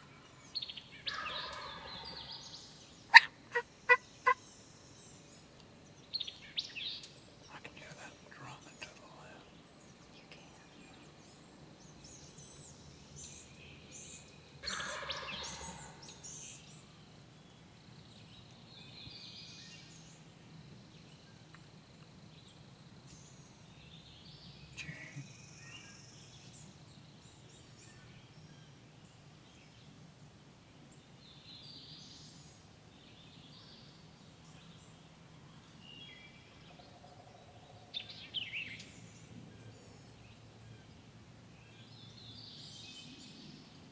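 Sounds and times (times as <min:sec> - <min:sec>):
songbirds chirping faintly: 0:00.0 - 0:43.9
turkey gobbling: 0:01.1 - 0:02.1, 0:03.1 - 0:04.4, 0:14.6 - 0:16.0.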